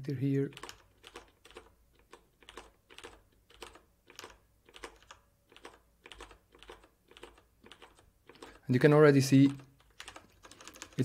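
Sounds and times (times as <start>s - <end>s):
computer keyboard typing: 0.5s - 11.0s.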